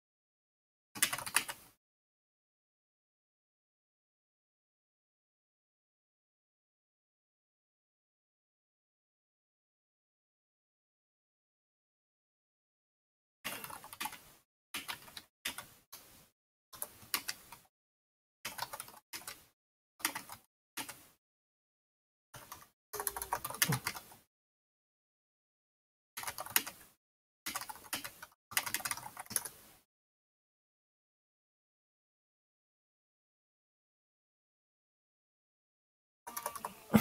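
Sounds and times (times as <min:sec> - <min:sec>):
computer keyboard typing: 0:01.0 - 0:01.8, 0:13.5 - 0:15.8, 0:16.8 - 0:17.7, 0:18.5 - 0:21.2, 0:22.4 - 0:24.2, 0:26.2 - 0:29.6, 0:36.3 - 0:36.8.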